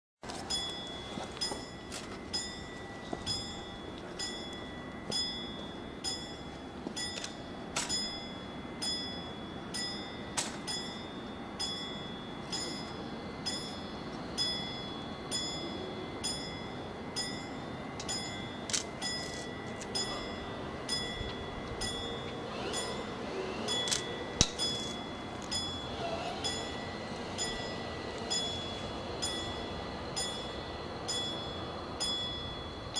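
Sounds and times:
level crossing bell ringing: 0:00.3 - 0:32.9.

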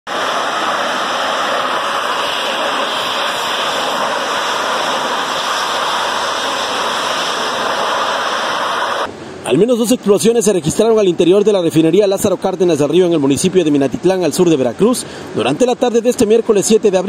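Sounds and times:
high-pressure water jets rushing: 0:00.1 - 0:09.1.

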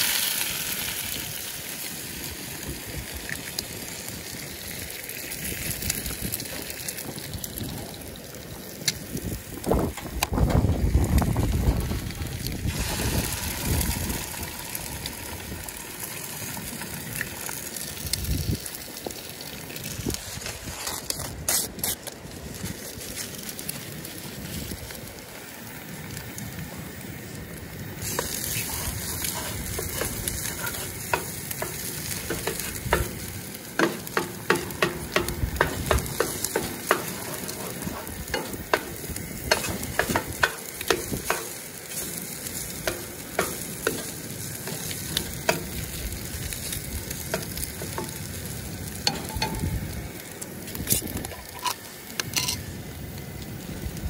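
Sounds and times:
bacon and eggs sizzling: 0:00.0 - 0:54.0
spatula scraping pan: 0:28.0 - 0:33.2, 0:35.6 - 0:38.9, 0:39.5 - 0:42.1.

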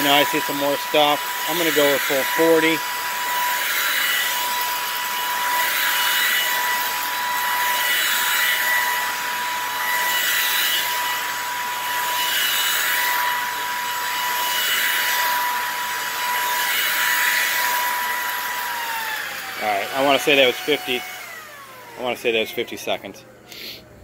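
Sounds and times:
stick vacuum running on carpet: 0:00.0 - 0:23.7.

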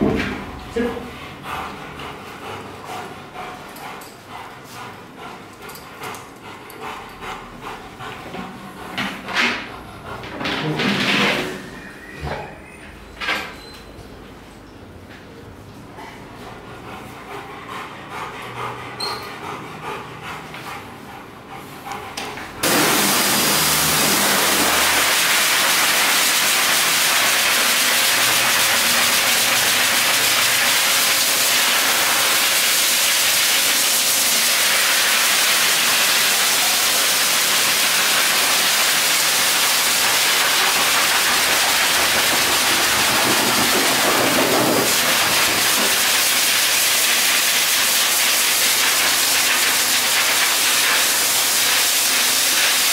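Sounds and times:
pet dryer blowing air: 0:22.6 - 0:52.9.

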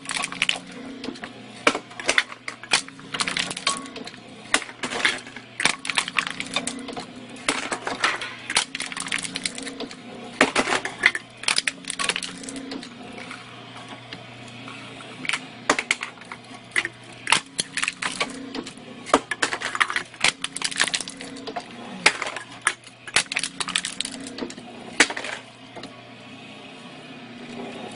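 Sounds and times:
cans clattering and crunching: 0:00.0 - 0:00.8, 0:01.7 - 0:09.7, 0:10.4 - 0:13.4, 0:15.2 - 0:21.4, 0:22.0 - 0:24.4
steady motor hum: 0:00.0 - 0:27.9.

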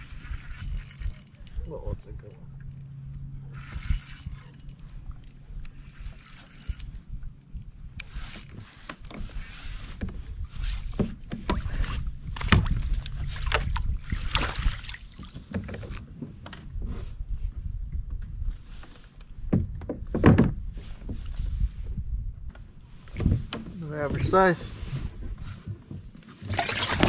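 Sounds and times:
knocks and clatters on kayak hull: 0:08.0 - 0:17.0, 0:18.0 - 0:24.3, 0:25.0 - 0:27.0
water splashing: 0:26.4 - 0:27.0.

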